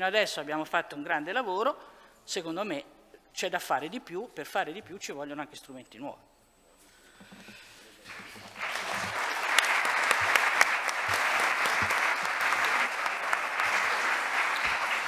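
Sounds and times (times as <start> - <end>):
audience applauding: 8.1 - 15.0.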